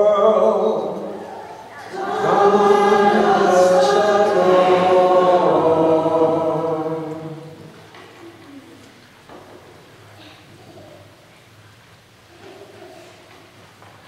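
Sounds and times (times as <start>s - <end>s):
choir singing unaccompanied chant: 0.2s - 7.8s.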